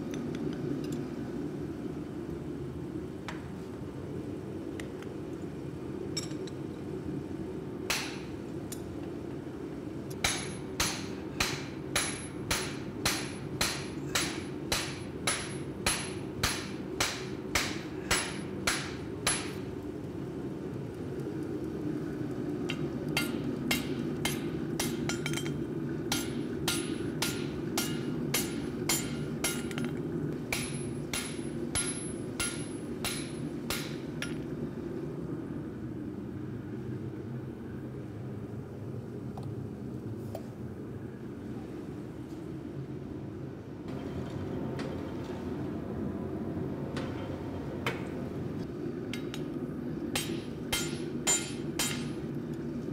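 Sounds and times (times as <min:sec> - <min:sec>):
hammer striking hot metal: 0:07.9 - 0:08.3, 0:10.2 - 0:19.7, 0:22.7 - 0:34.4, 0:50.1 - 0:52.2.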